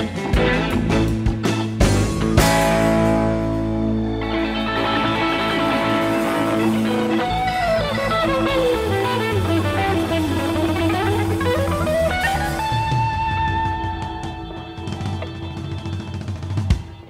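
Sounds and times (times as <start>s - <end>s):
electric guitar line descending: 0.0s - 17.0s
rock band holding a chord: 0.0s - 17.0s.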